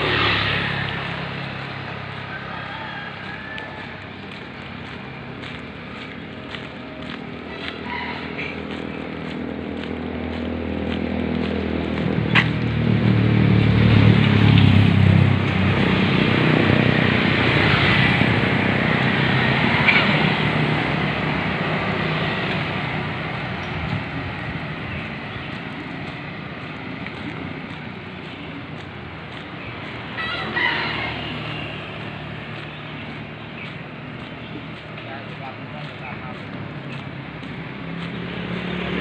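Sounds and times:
motorcycle engine passing: 0:00.0 - 0:02.5
street traffic noise: 0:00.0 - 0:39.0
rooster crowing: 0:02.0 - 0:04.4, 0:07.5 - 0:08.8, 0:30.1 - 0:32.3.

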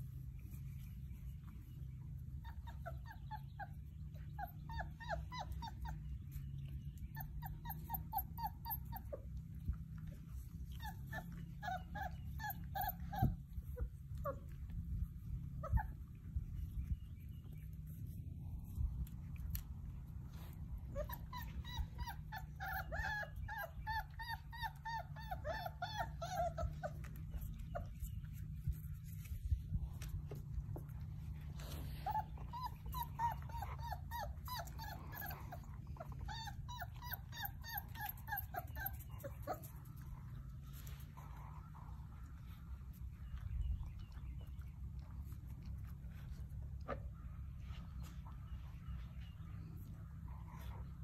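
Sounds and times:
puppies whimpering and yipping: 0:00.1 - 0:51.0
steady low rumble: 0:09.1 - 0:22.6, 0:26.1 - 0:38.2, 0:38.9 - 0:51.0.

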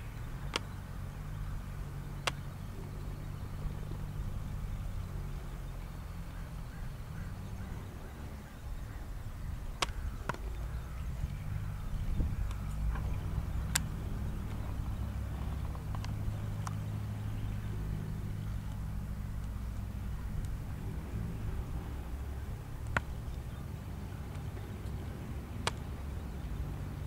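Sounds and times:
low steady rumble: 0:00.0 - 0:27.0
sharp clicks: 0:00.3 - 0:01.3, 0:02.2 - 0:03.7, 0:09.5 - 0:20.6, 0:21.8 - 0:26.5.

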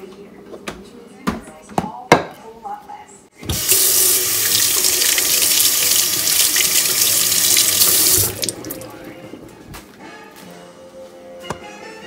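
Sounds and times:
faucet water splashing into sink: 0:03.4 - 0:09.0.

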